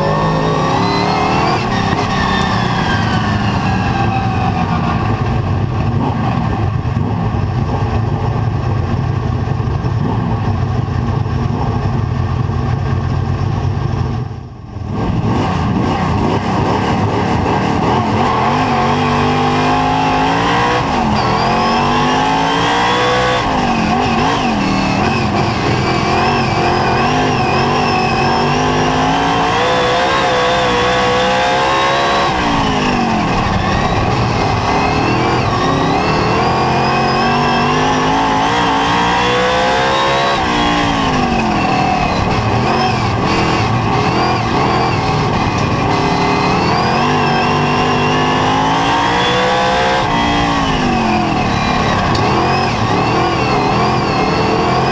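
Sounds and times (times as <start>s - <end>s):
race car engine revving: 0.0s - 12.4s, 14.8s - 54.9s.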